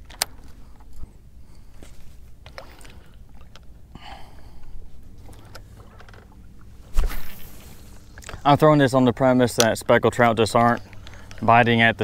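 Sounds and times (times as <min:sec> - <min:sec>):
clicks and knocks of fishing tackle: 0:00.0 - 0:01.0, 0:01.7 - 0:03.7, 0:05.2 - 0:06.4, 0:07.0 - 0:08.6, 0:09.5 - 0:11.9
low steady rumble: 0:00.0 - 0:12.0
soft rustle: 0:00.3 - 0:03.2, 0:04.9 - 0:08.5.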